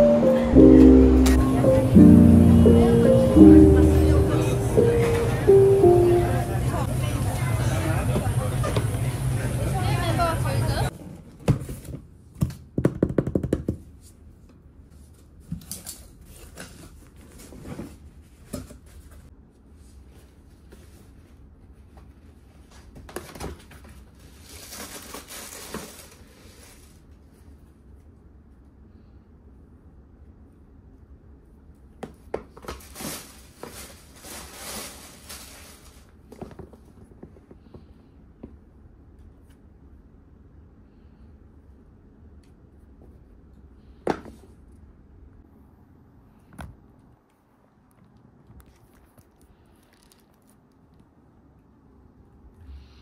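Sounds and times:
tissue paper rustling: 0:24.1 - 0:27.0, 0:32.8 - 0:36.2.

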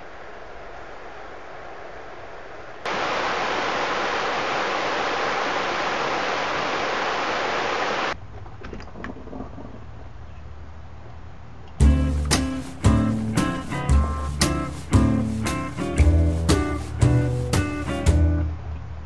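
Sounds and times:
river rushing over stones: 0:00.0 - 0:08.2
softer water rush: 0:00.0 - 0:08.2.

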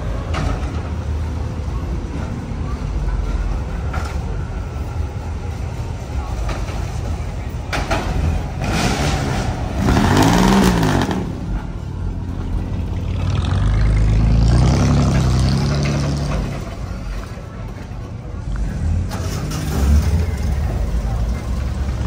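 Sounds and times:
deeper car engine passing: 0:07.9 - 0:17.2
car engine passing by: 0:08.6 - 0:11.6, 0:12.9 - 0:16.9.

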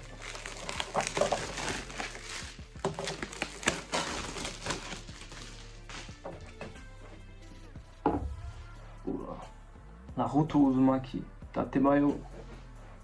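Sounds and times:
packaging rustling and crinkling: 0:00.0 - 0:06.3.

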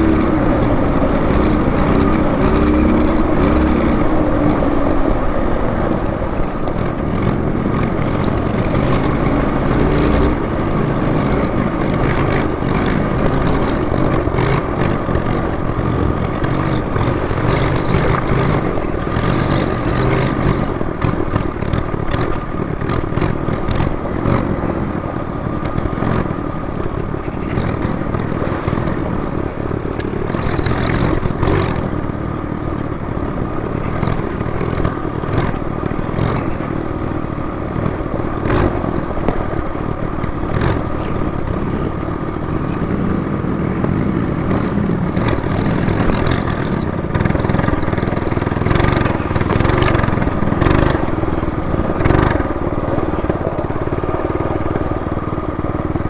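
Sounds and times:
bike rattling and clattering: 0:00.0 - 0:56.0
minibike engine running: 0:00.0 - 0:56.0.

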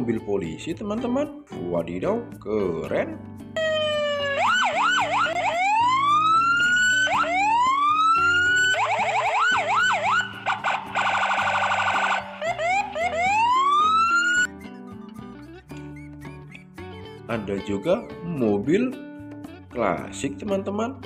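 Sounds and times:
police car siren: 0:03.6 - 0:14.5.

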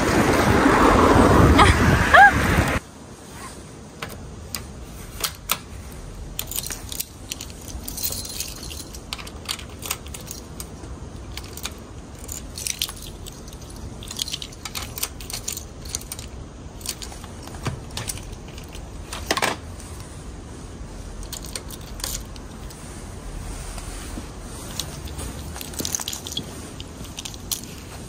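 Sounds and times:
keys jangling: 0:06.3 - 0:19.4, 0:21.2 - 0:22.8, 0:24.6 - 0:28.0.

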